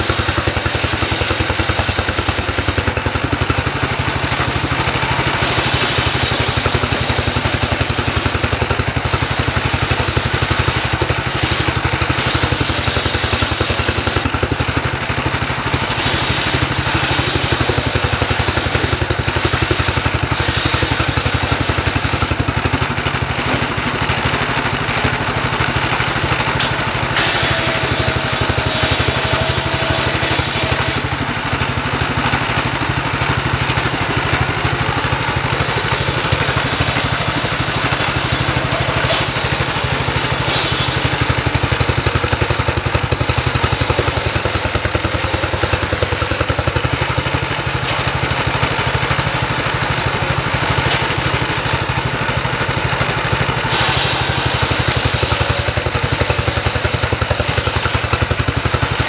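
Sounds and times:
diesel engine running: 0.0 - 59.0
circular saw blade ripping wood: 26.5 - 48.8, 53.6 - 59.0.

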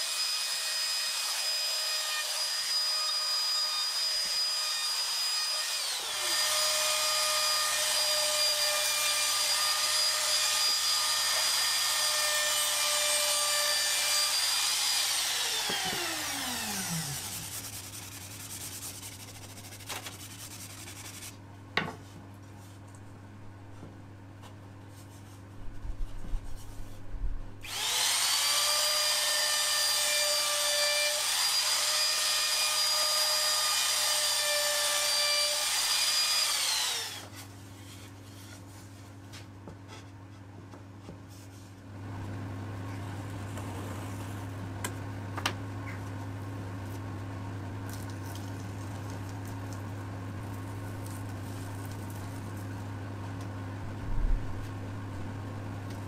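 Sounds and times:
power tool motor whine: 0.0 - 17.4, 27.6 - 37.2.

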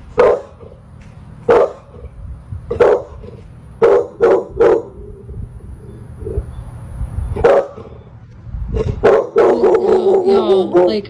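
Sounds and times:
dog barking: 0.1 - 0.8, 1.5 - 2.0, 2.7 - 3.2, 3.8 - 5.0, 7.4 - 8.0, 8.8 - 10.9.

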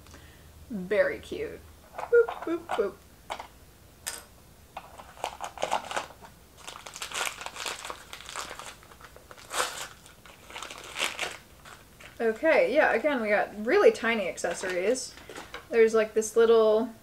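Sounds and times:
packaging crinkling and rustling: 4.8 - 12.2.

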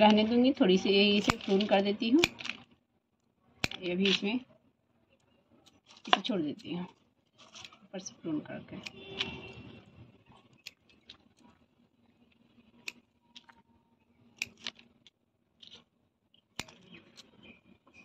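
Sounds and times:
scissors snipping stems: 1.1 - 2.6, 5.6 - 6.8, 16.5 - 17.4.

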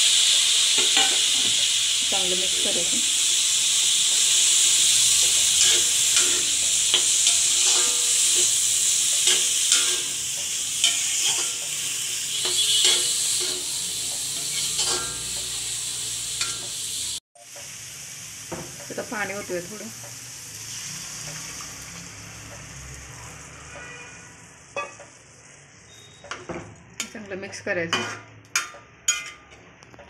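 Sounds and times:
food sizzling in hot oil: 0.0 - 29.6
spatula scraping metal pan: 5.2 - 10.2, 10.8 - 15.5, 27.9 - 29.6.

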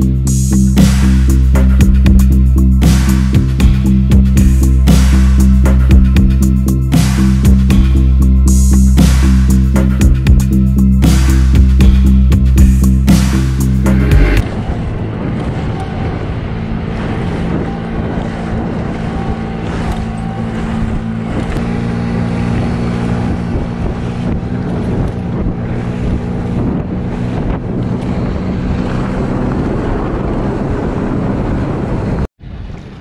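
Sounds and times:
motorboat engine droning: 0.0 - 33.0
wind buffeting microphone: 1.0 - 33.0
water rushing past hull: 10.2 - 33.0.

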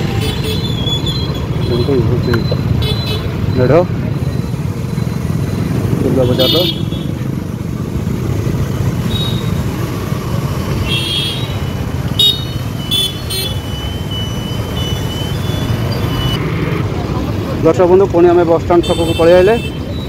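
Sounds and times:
motorcycle engine and road rumble: 0.0 - 20.0
vehicle horn toots: 6.2 - 7.2, 10.8 - 11.6.

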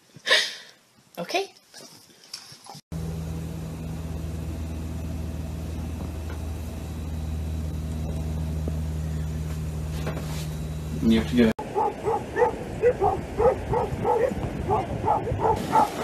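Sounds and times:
low hum with deep tones: 2.9 - 15.5.

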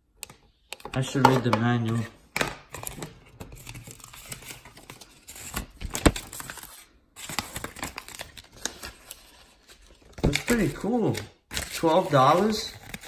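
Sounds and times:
pages flipping: 2.7 - 13.0
paper rustling and crinkling: 2.7 - 13.0.

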